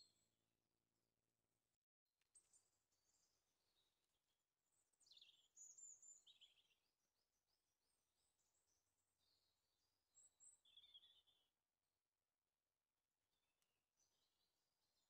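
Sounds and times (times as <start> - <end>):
faint songbird calls: 10.2 - 11.5.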